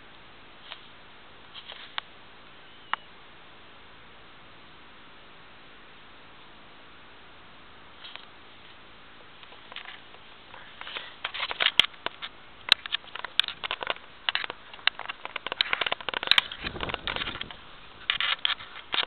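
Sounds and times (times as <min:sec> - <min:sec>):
grass brushing against camera: 0:00.6 - 0:02.1, 0:09.4 - 0:19.0.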